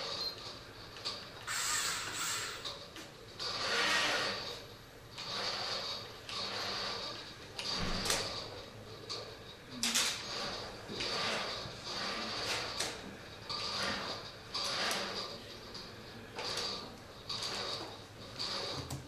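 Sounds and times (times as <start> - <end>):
electric motors whirring: 1.4 - 2.7.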